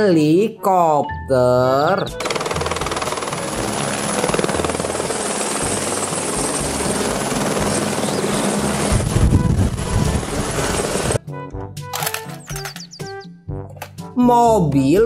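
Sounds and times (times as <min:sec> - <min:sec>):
helicopter rotor beat: 0:02.1 - 0:11.2
high turbine whine: 0:02.9 - 0:11.2.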